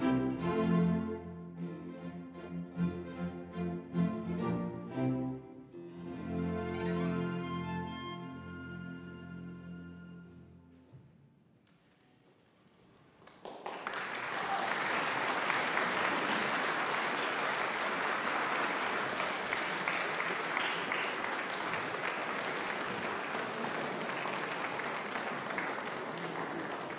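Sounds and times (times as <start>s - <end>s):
audience applause: 13.1s - 26.9s.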